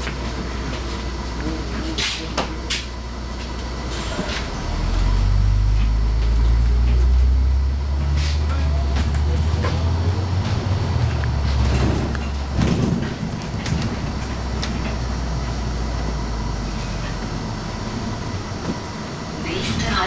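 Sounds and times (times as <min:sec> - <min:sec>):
bus engine rumble: 0:00.0 - 0:20.0
interior rattles and clicks: 0:08.4 - 0:16.2.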